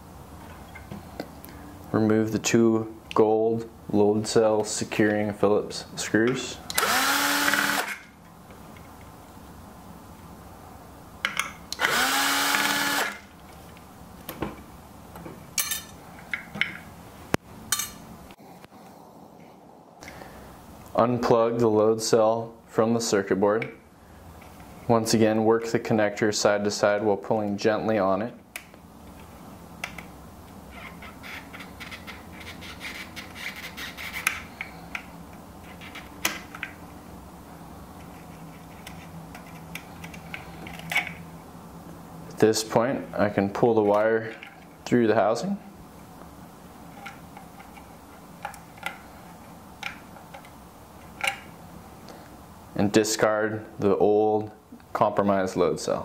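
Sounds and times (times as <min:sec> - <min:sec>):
electric screwdriver running: 0:06.7 - 0:08.0, 0:11.8 - 0:13.3.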